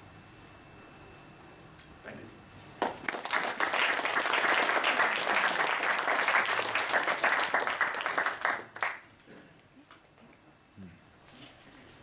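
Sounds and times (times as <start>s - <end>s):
audience applauding: 2.8s - 9.1s.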